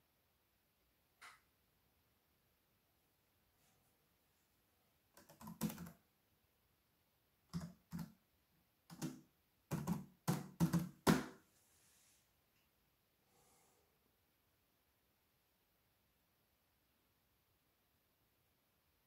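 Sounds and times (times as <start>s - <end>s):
computer keyboard typing: 5.2s - 6.0s, 7.5s - 8.2s, 8.9s - 11.3s.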